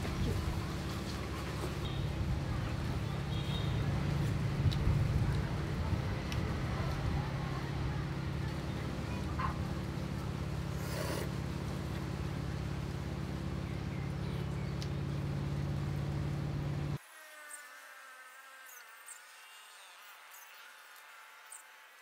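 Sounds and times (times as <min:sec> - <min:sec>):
low engine-like hum: 0:00.0 - 0:17.0.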